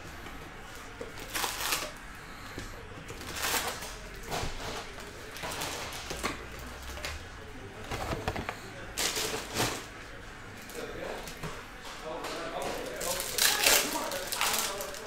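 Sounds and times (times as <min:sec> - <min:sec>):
foil packs crinkling: 0:01.2 - 0:02.0, 0:03.2 - 0:06.2, 0:12.7 - 0:15.0.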